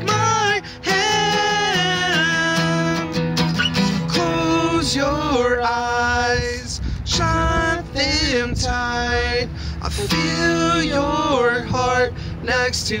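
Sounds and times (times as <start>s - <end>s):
acoustic guitar: 0.0s - 13.0s
man singing held notes: 9.8s - 11.8s.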